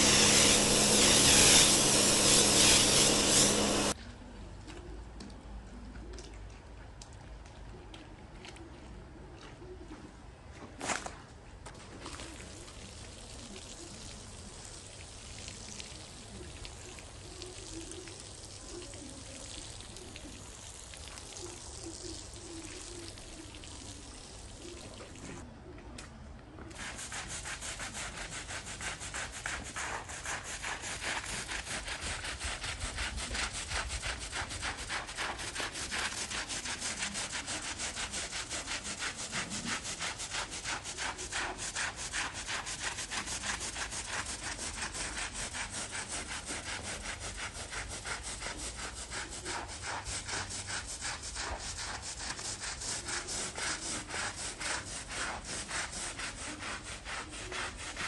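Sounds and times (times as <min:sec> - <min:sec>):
broom scrubbing wet rug: 0:00.0 - 0:04.0, 0:26.7 - 0:58.0.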